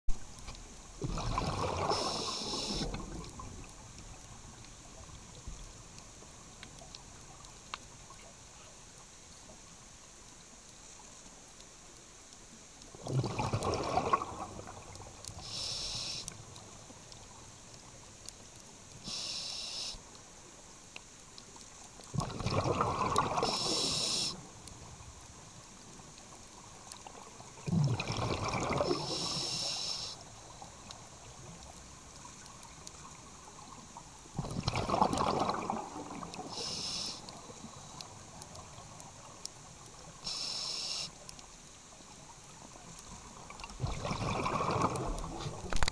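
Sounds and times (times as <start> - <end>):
exhaled air bubbling: 1.0 - 3.7, 13.0 - 16.2, 22.1 - 24.5, 27.5 - 29.7, 34.3 - 37.4, 43.3 - 45.9
regulator inhalation hisses: 1.9 - 3.0, 15.4 - 16.4, 19.0 - 20.0, 23.4 - 24.4, 28.9 - 30.2, 36.4 - 38.0, 40.2 - 41.2.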